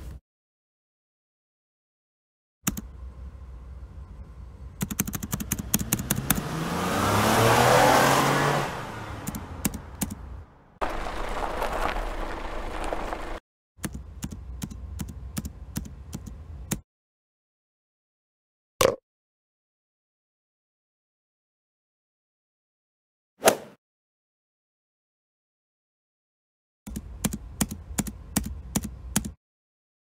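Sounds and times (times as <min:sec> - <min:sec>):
motor vehicle passing by: 0:05.4 - 0:13.4.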